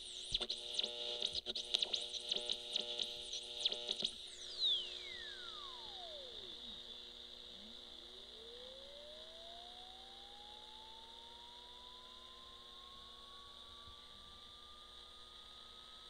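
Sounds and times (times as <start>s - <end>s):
faint hum: 0.0s - 16.0s
steady high whine: 0.0s - 16.0s
falling and rising electronic tone: 3.7s - 6.9s, 7.5s - 16.0s.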